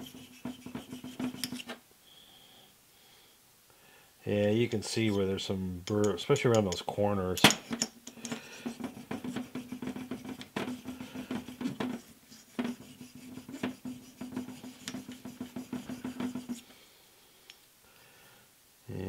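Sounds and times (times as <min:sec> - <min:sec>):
sharpening stone scraping steel: 0:00.0 - 0:01.7, 0:07.5 - 0:16.6.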